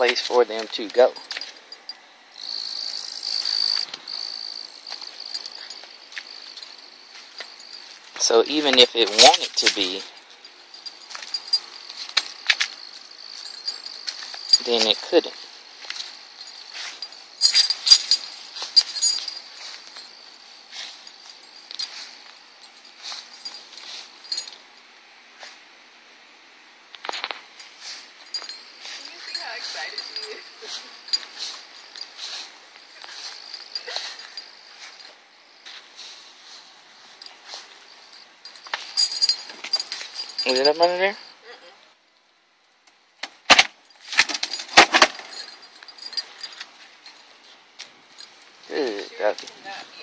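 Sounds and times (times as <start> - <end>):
cricket trilling: 0.0 - 24.6, 26.9 - 41.8
dog collar tags jingling: 0.0 - 24.9, 27.0 - 41.7, 43.9 - 50.0.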